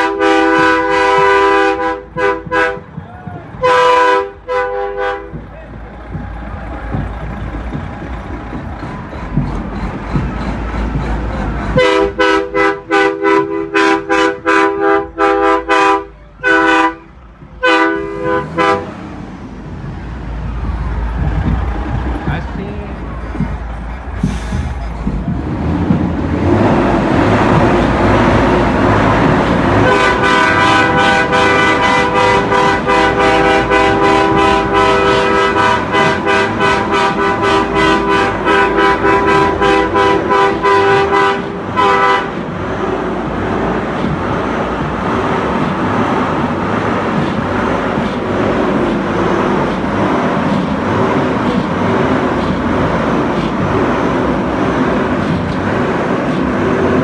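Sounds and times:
truck air horn blasting: 0.0 - 2.9, 3.6 - 5.4, 11.8 - 19.0, 29.8 - 42.5
diesel engine running: 0.0 - 57.0.

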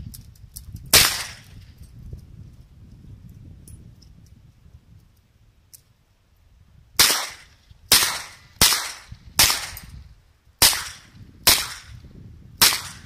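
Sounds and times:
revolver gunshots with echo: 0.9 - 1.5, 7.0 - 9.9, 10.6 - 12.0, 12.6 - 13.0.

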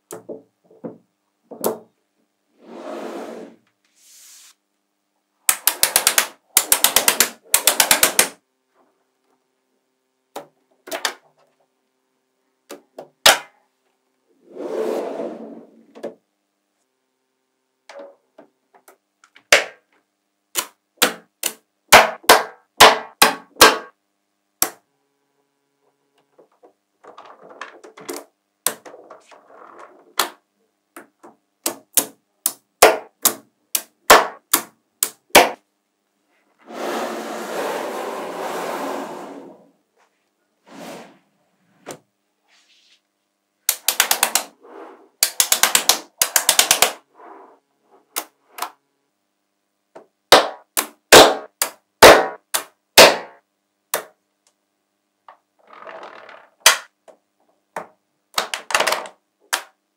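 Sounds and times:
magnetic balls clicking: 5.5 - 8.4, 43.6 - 44.5, 45.2 - 47.0.

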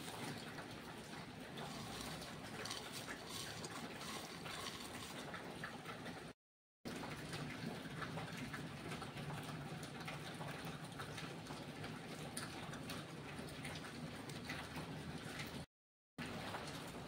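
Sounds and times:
dried prawns crackling and rustling: 1.7 - 5.2.

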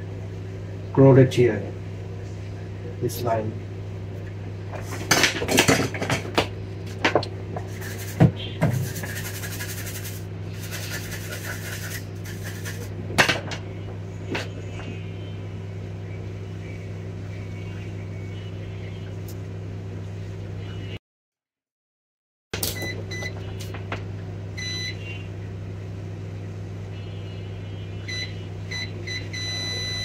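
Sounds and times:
steady low hum: 0.0 - 21.0, 22.6 - 30.0.

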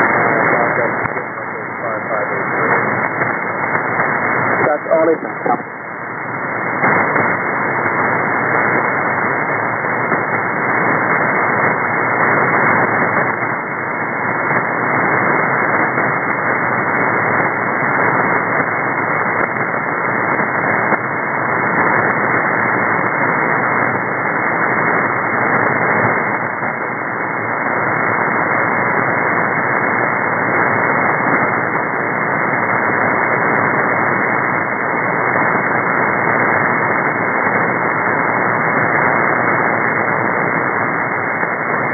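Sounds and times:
radio static hiss with crackles: 0.0 - 41.9.

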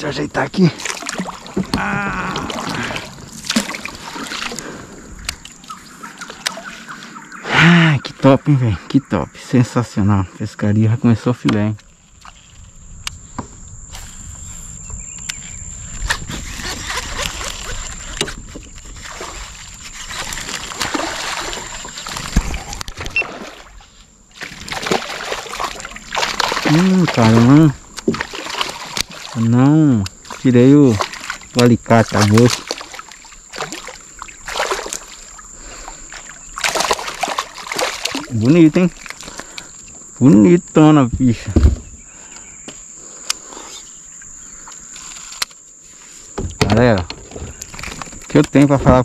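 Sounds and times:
paddle splashing in water: 0.7 - 7.4, 16.4 - 39.9
paddle knocking against hull: 0.8 - 4.6, 24.4 - 29.4, 41.4 - 42.0, 46.4 - 49.0.

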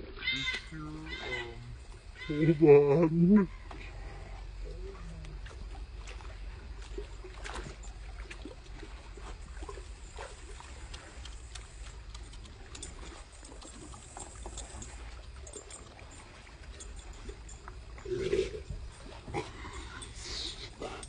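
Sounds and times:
dog splashing through water: 4.9 - 21.0.

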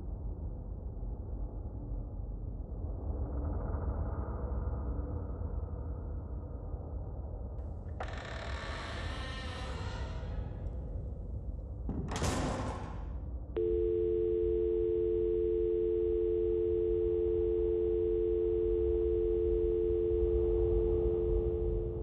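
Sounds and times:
telephone dial tone: 13.6 - 22.0.

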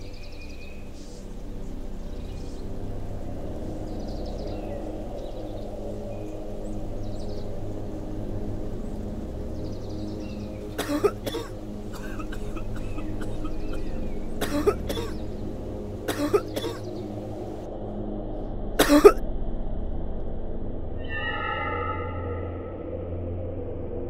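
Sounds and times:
man coughing: 10.8 - 13.8, 14.4 - 15.2, 16.1 - 16.9, 18.8 - 19.2.

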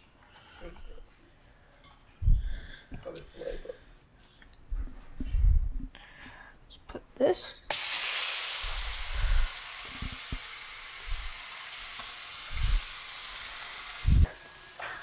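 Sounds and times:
dull low thumps: 2.2 - 2.6, 4.7 - 5.9
fish sizzling in a frying pan: 7.7 - 14.1.

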